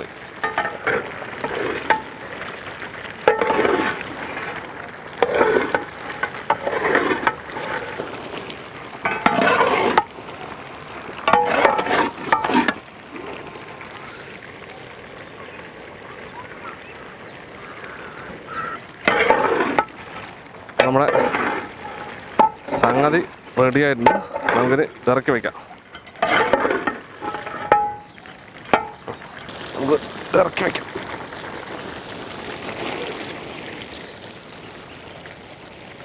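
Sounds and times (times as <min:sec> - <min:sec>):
curry sizzling in a pot: 0:00.0 - 0:36.0
scraping while stirring: 0:00.4 - 0:02.1, 0:03.3 - 0:08.4, 0:09.0 - 0:10.1, 0:11.3 - 0:12.8, 0:19.0 - 0:29.5.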